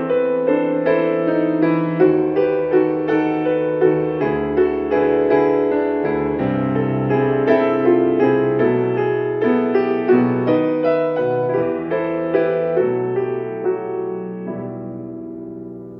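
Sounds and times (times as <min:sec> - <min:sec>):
grand piano playing slowly: 0:00.0 - 0:15.9.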